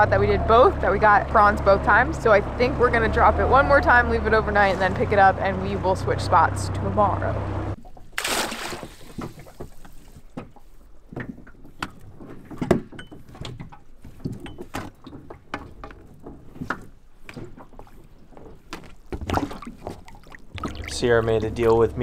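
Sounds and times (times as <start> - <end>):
trap splashing into water: 7.8 - 9.9.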